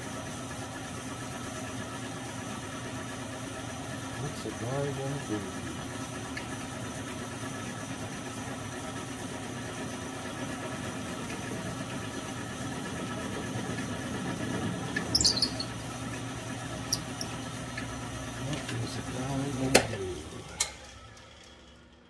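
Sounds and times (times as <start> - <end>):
milling machine motor hum: 0.6 - 21.6
high-pitched squeal: 15.1 - 15.8.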